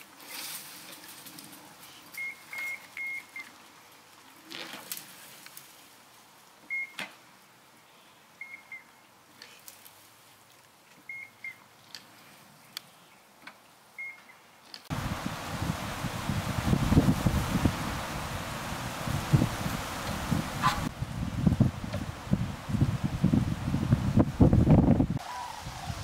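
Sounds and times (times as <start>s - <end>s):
short high beeps: 2.2s - 3.4s.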